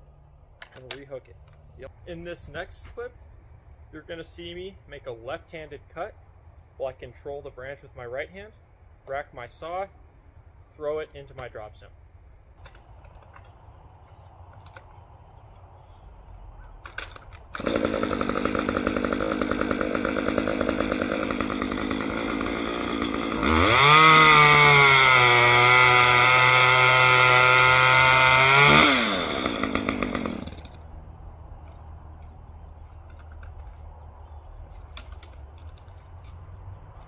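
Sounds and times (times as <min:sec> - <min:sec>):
chainsaw revving and cutting: 0:17.6 - 0:30.8.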